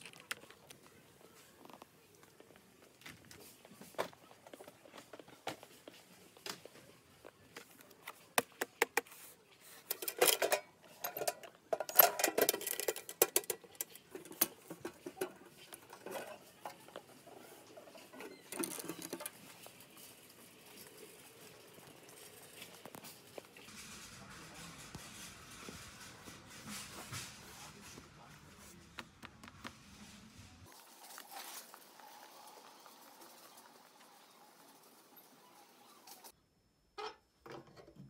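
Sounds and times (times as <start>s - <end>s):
clicks and taps on metal boxes: 9.9s - 16.8s
metal boxes clattering: 9.9s - 17.0s.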